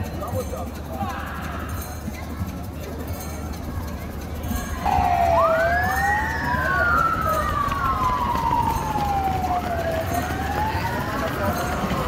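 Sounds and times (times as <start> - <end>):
siren wailing: 4.8 - 12.0.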